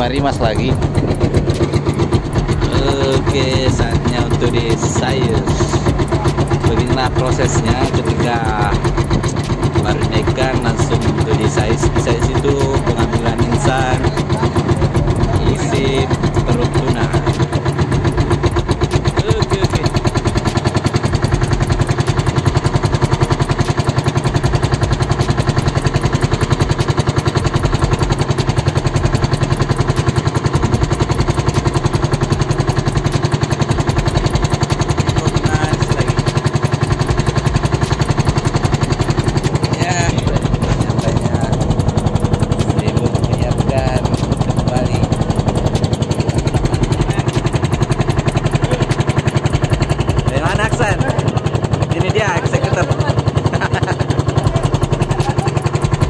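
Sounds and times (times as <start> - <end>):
boat engine thumping: 0.0 - 56.0.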